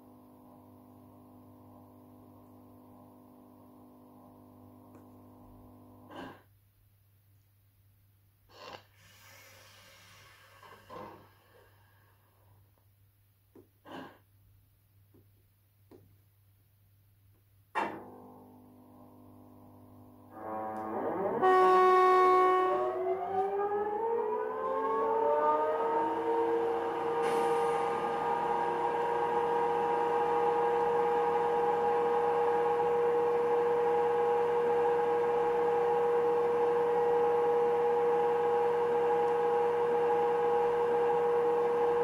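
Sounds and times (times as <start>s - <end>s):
air-like hiss: 8.9s - 12.0s
steady humming tone: 17.8s - 42.0s
electric whine gliding upward: 20.3s - 42.0s.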